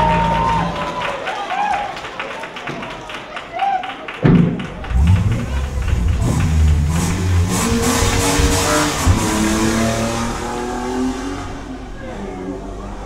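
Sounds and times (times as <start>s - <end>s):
car engine revving: 4.8s - 13.0s.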